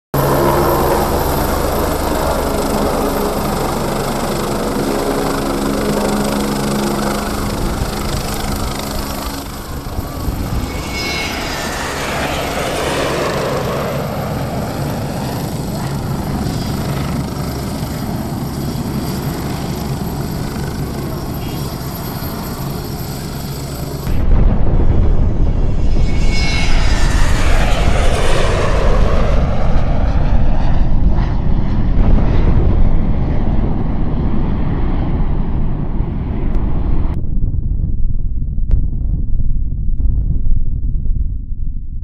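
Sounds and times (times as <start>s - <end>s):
aircraft engine roar: 0.1s - 37.7s
whining tone sweeping down: 0.2s - 31.4s.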